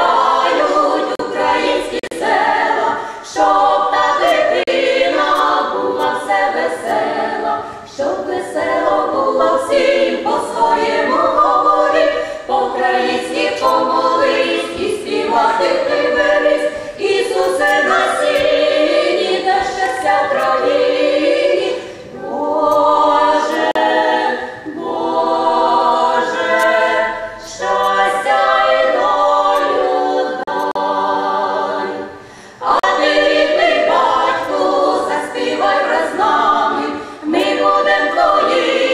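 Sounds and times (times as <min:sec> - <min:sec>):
women singing in harmony: 0:00.0 - 0:38.9.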